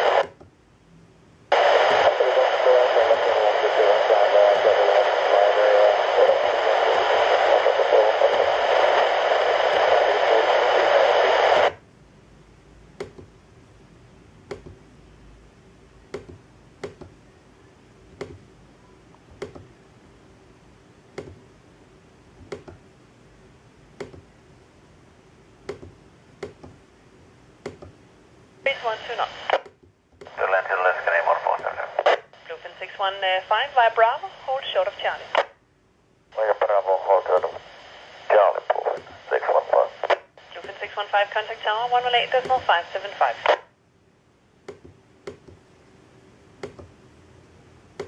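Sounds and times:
radio static hiss: 0.0s - 0.4s, 1.5s - 11.8s, 28.6s - 29.6s, 30.2s - 35.6s, 36.3s - 43.8s.

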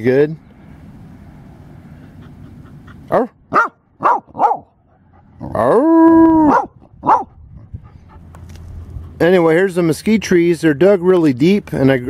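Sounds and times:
dog barking: 3.1s - 4.7s, 6.5s - 7.4s.

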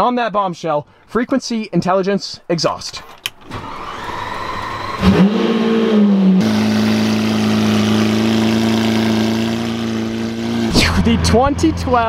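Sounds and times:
click: 3.0s - 3.5s
starter whirring: 3.0s - 11.2s
car engine revving and idling: 3.5s - 12.0s.

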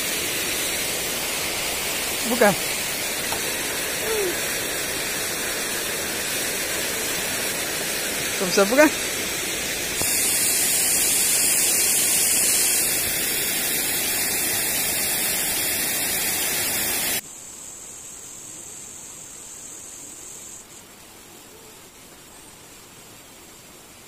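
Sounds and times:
high hiss: 0.0s - 24.0s.

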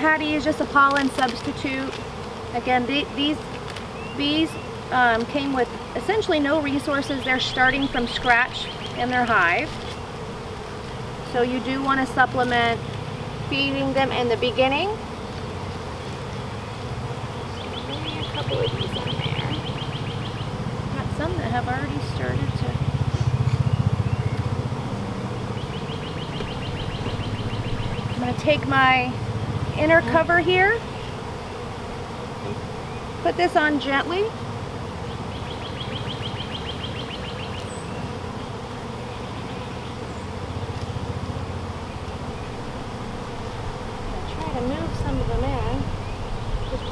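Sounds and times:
honeybees buzzing: 0.0s - 46.9s
bird trilling: 7.0s - 10.3s, 17.4s - 20.8s, 22.8s - 28.6s, 35.0s - 38.1s, 45.8s - 46.9s.

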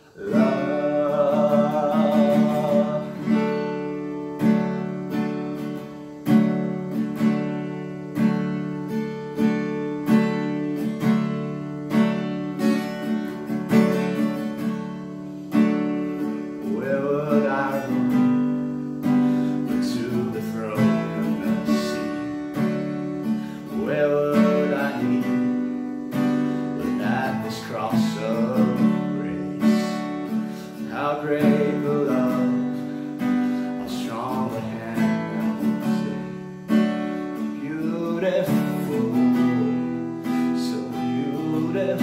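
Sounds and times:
man singing: 0.0s - 4.6s, 16.0s - 42.0s
acoustic guitar strumming: 0.0s - 42.0s.

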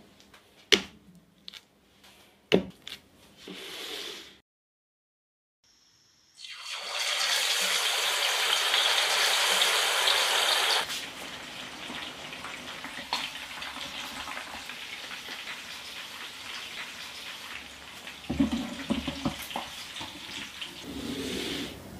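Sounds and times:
meat sizzling in hot oil: 6.3s - 20.8s.

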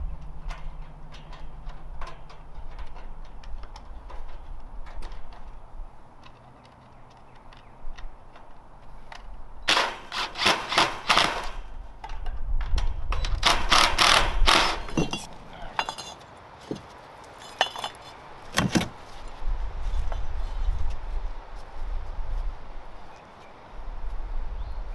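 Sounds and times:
hand tool clacking on wire mesh: 0.5s - 5.5s.

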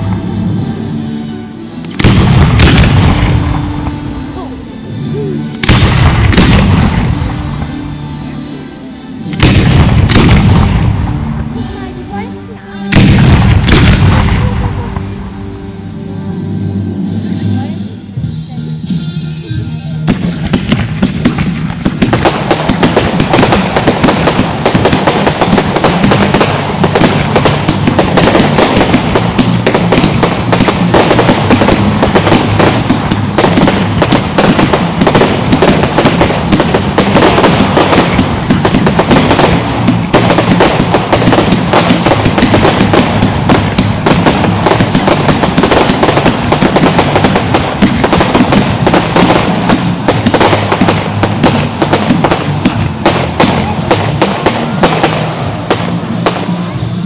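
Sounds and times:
fireworks bangs and crackling: 0.0s - 15.5s, 20.0s - 57.0s.

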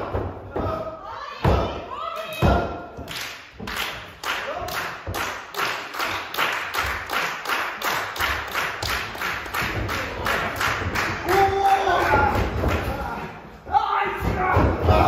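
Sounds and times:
audience clapping in rhythm: 3.0s - 12.9s.

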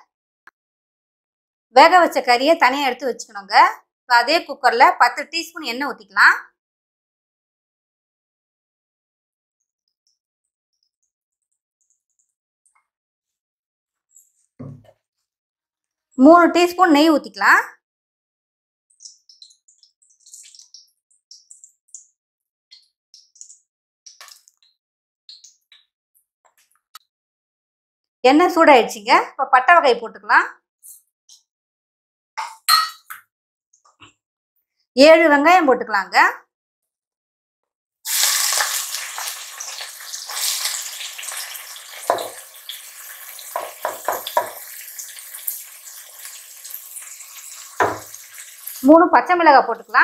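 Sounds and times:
hot oil crackling and spitting: 18.9s - 22.1s, 38.1s - 48.9s.

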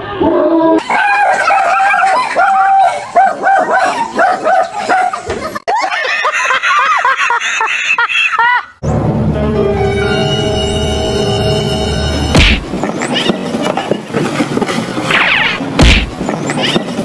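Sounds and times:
man and woman laughing: 5.2s - 8.8s
music: 8.8s - 12.6s.

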